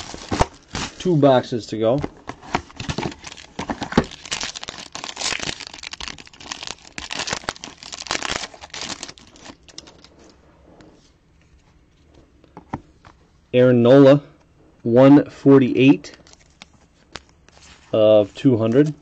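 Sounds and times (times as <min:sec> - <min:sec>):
foil wrapper tearing and crinkling: 0:00.0 - 0:01.1, 0:02.7 - 0:10.1.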